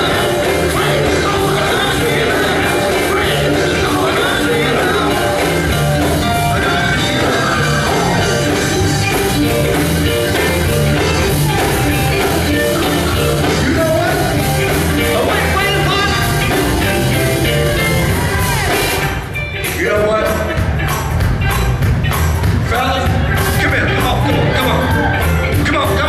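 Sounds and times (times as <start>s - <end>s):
male vocal group singing: 0.0s - 8.9s, 13.2s - 16.5s
band music with drums and bass: 0.0s - 26.0s.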